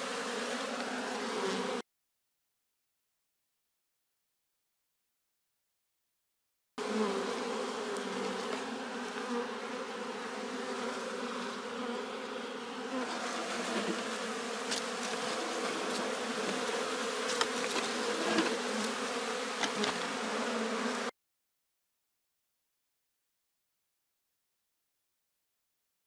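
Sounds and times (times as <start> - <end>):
bees buzzing: 0.0 - 1.8, 6.8 - 21.1.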